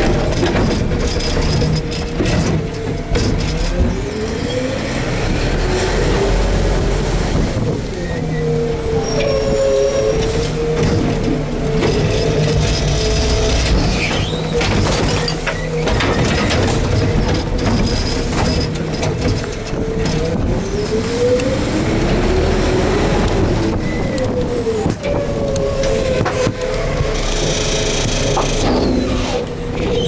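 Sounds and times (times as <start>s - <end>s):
knocks and clanks from load: 0.0s - 4.0s, 10.4s - 20.7s, 23.3s - 30.0s
garbage truck hydraulic whine: 0.1s - 30.0s.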